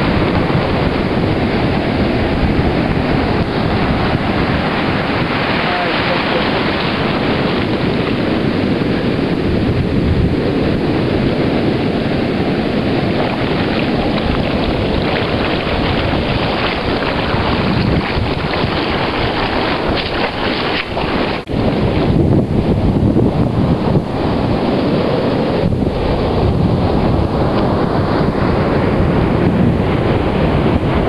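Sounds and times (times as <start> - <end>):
breaking surf: 0.0 - 22.8
wind buffeting microphone: 0.0 - 31.0.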